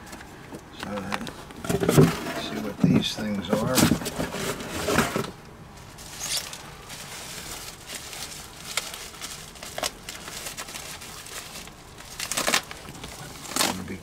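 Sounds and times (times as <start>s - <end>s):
bubble wrap crinkling: 5.8s - 14.0s.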